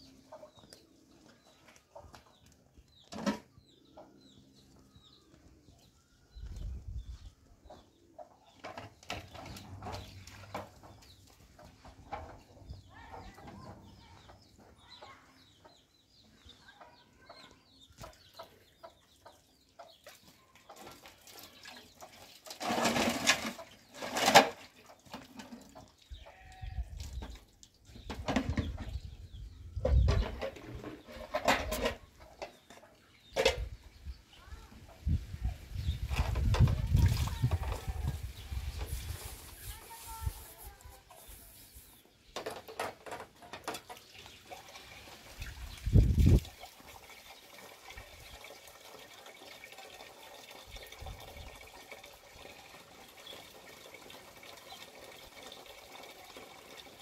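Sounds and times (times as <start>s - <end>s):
chickens clucking: 0.0s - 26.4s, 27.2s - 48.3s
farmyard animals calling: 26.1s - 27.0s.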